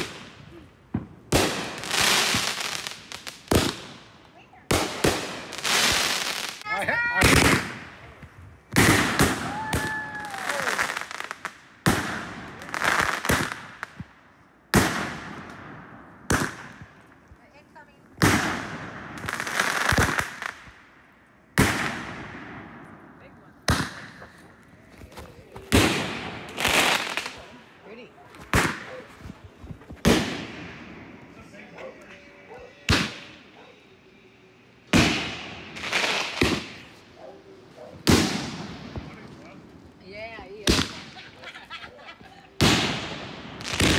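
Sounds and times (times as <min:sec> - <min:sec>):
firework bangs: 0:00.0 - 0:08.1, 0:08.7 - 0:14.1, 0:14.7 - 0:17.0, 0:18.2 - 0:20.9, 0:21.5 - 0:24.4, 0:25.6 - 0:31.6, 0:32.8 - 0:33.6, 0:34.8 - 0:37.1, 0:37.9 - 0:39.7, 0:40.6 - 0:41.4, 0:42.5 - 0:43.9
firework crackling: 0:00.0 - 0:14.1, 0:18.1 - 0:23.0, 0:23.6 - 0:24.7, 0:25.6 - 0:27.8, 0:28.4 - 0:31.6, 0:32.8 - 0:37.2, 0:38.0 - 0:41.7, 0:42.5 - 0:43.9.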